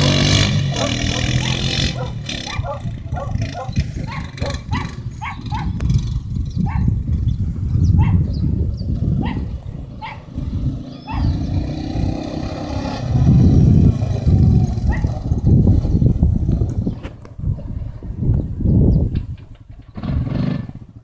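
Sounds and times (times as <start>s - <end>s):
quad bike engine running: 0.0s - 17.9s, 19.4s - 21.0s
dog barking: 0.7s - 5.8s, 6.6s - 7.0s, 8.0s - 8.2s, 9.2s - 10.3s, 11.1s - 11.4s, 14.9s - 15.2s.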